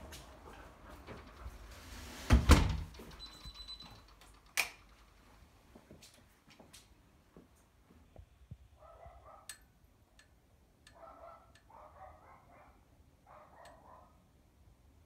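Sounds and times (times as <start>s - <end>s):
faint dog barking: 8.7s - 9.6s, 10.9s - 14.3s.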